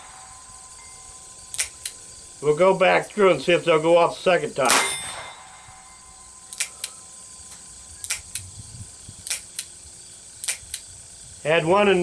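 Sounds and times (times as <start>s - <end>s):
revolver action clicking: 1.5s - 2.0s, 6.5s - 8.5s, 9.2s - 9.7s, 10.4s - 10.9s.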